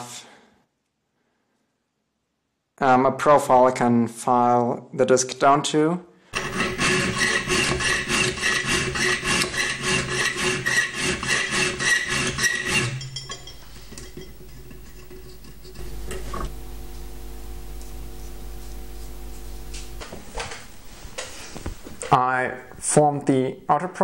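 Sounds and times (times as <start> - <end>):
hand file rasping on metal: 6.4 - 16.5
low steady hum: 13.0 - 23.8.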